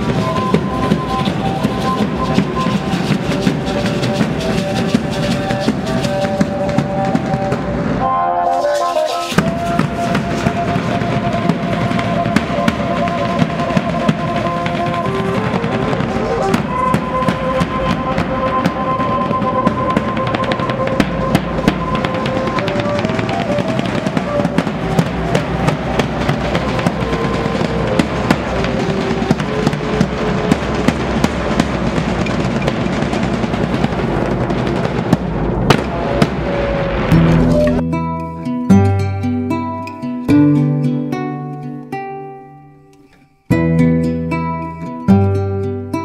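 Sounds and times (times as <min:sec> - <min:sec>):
high instrument melody: 0:00.0 - 0:33.1, 0:35.7 - 0:42.4
drum band playing dance beat: 0:00.0 - 0:36.6.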